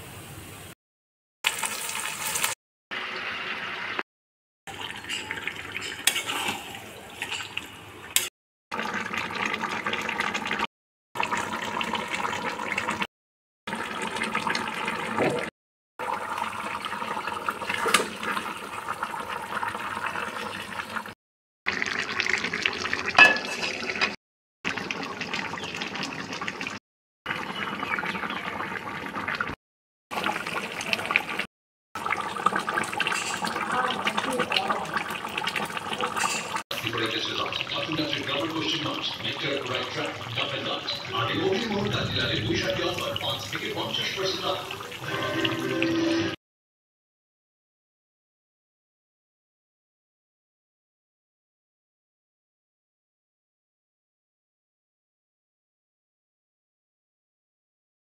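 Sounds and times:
chicken sizzling in oil: 1.5s - 4.0s, 30.1s - 46.3s.

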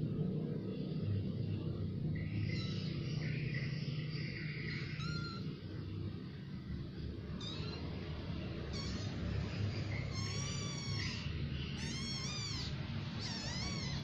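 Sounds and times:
steady low rumble: 0.0s - 14.0s
kittens mewing: 2.2s - 5.7s, 7.2s - 14.0s.

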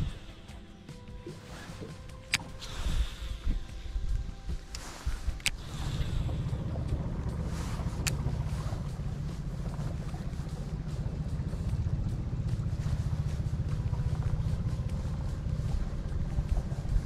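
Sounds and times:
low rumble: 1.8s - 17.0s
fishing reel click: 4.6s - 6.3s, 7.5s - 8.8s.

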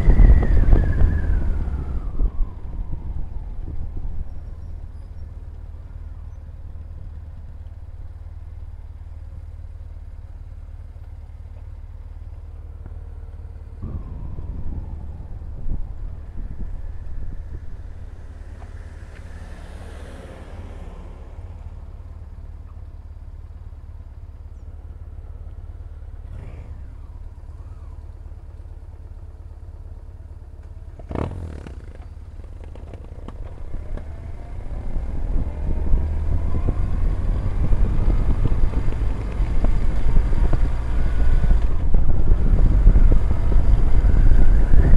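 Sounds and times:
wind on microphone: 0.0s - 5.0s, 13.8s - 18.7s, 33.3s - 44.9s
motorcycle engine running: 3.6s - 44.9s.

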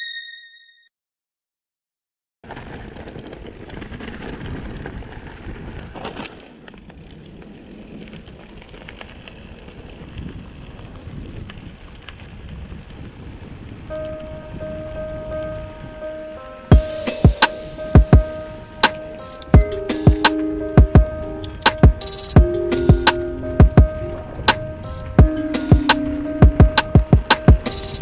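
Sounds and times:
bike rattling over bumps: 2.4s - 14.2s, 16.7s - 28.0s
bike tyres rolling on gravel: 2.4s - 28.0s.

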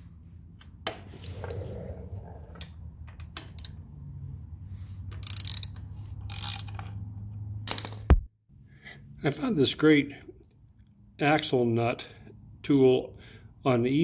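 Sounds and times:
hand ratchet clicking: 5.1s - 7.0s.

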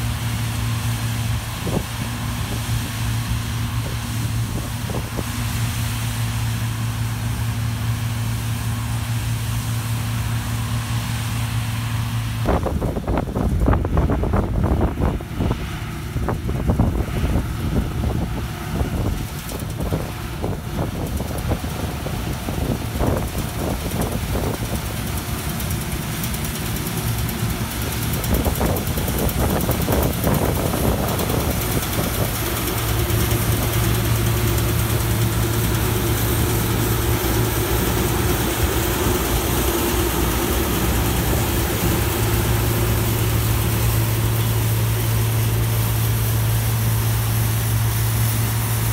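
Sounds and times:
combine harvester running: 0.0s - 48.9s
wind buffeting on microphone: 1.2s - 5.7s, 12.4s - 25.4s, 26.6s - 45.8s.

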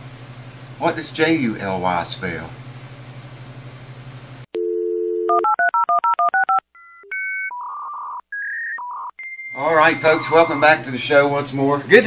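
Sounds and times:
low electrical hum: 0.0s - 5.2s
telephone dial tone: 4.6s - 10.5s
short electronic phone tones: 4.6s - 10.8s
touch-tone dialing beeps: 4.6s - 10.8s.

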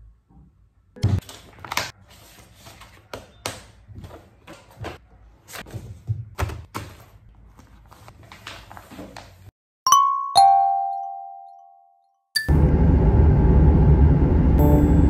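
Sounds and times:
paper rustling: 1.1s - 9.5s
plastic folder handled: 1.1s - 9.5s.

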